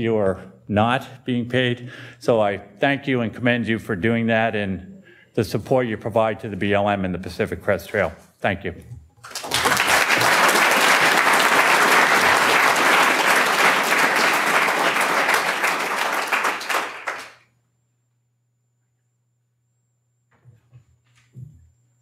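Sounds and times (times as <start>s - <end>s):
audience applauding: 9.2s - 17.4s.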